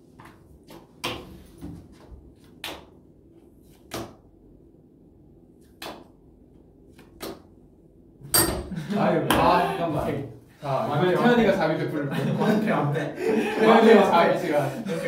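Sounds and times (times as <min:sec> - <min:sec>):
playing cards slapped on table: 0:00.7 - 0:01.3, 0:03.7 - 0:04.2, 0:05.8 - 0:06.1, 0:06.9 - 0:07.5.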